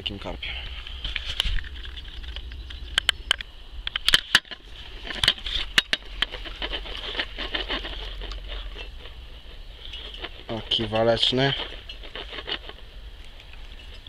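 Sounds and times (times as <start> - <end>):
high-pitched hiss: 0.0 - 12.1.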